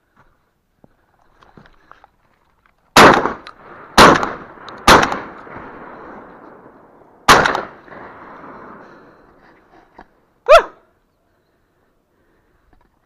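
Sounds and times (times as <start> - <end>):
shotgun shots with echo: 3.0 - 6.3, 7.2 - 8.8.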